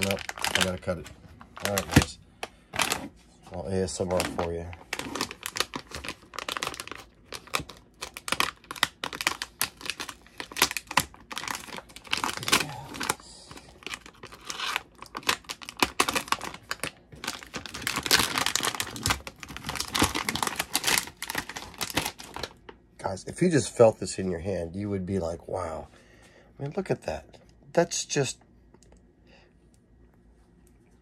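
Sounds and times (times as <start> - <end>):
plastic bag crinkling: 0.0 - 22.6.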